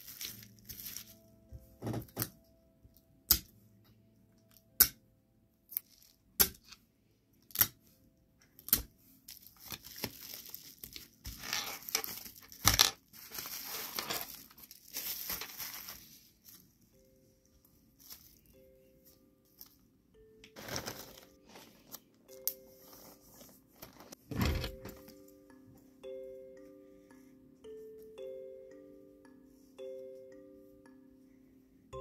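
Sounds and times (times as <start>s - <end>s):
plastic packaging crinkling: 0.0s - 1.2s, 9.3s - 16.7s, 20.6s - 22.0s.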